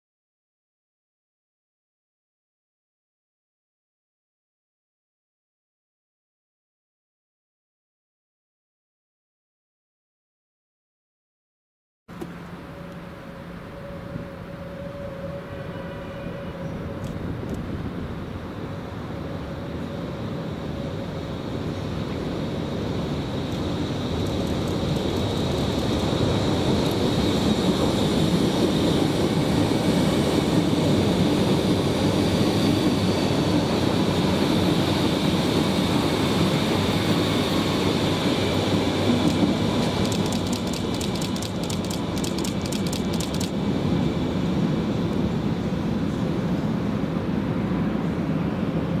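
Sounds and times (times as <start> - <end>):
train wheels rumbling on rail: 12.2 - 49.0
train wheels clicking: 23.4 - 28.6, 39.0 - 43.6.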